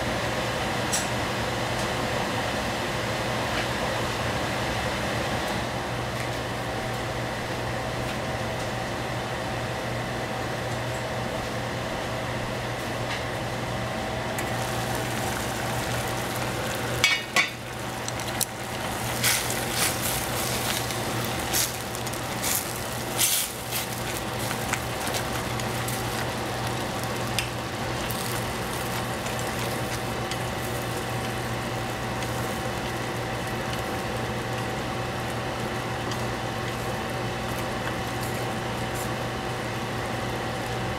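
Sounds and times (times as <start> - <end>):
steady low hum: 12.0 - 40.2
broth simmering in a saucepan: 14.2 - 40.9.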